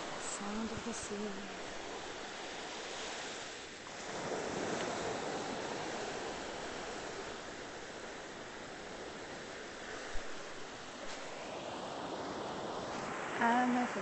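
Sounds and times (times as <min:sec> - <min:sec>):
surf breaking on a beach: 0:00.0 - 0:14.0.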